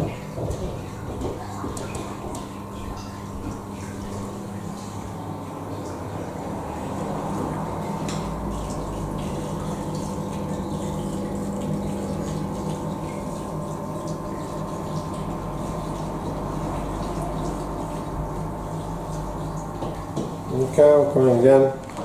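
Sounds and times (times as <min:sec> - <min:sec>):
moving water: 0:00.0 - 0:22.0
water pumps humming: 0:00.0 - 0:22.0.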